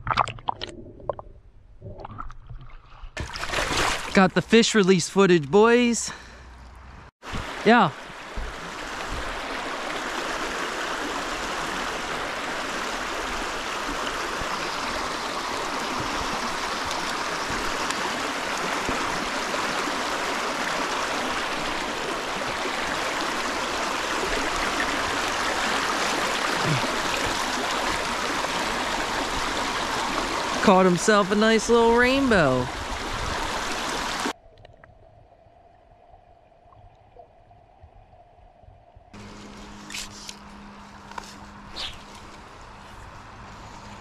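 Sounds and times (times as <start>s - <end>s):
creek water flowing: 2.8s - 34.9s, 39.2s - 44.0s.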